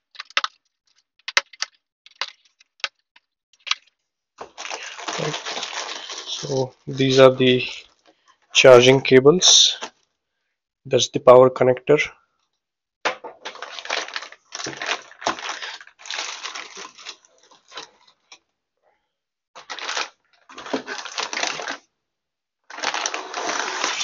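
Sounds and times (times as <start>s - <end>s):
plastic bags crinkling: 3.6s - 8.5s, 13.2s - 18.4s, 19.6s - 21.9s, 22.7s - 24.0s
cardboard packaging handled: 4.4s - 7.2s, 13.4s - 18.3s, 19.6s - 21.8s, 22.7s - 24.0s.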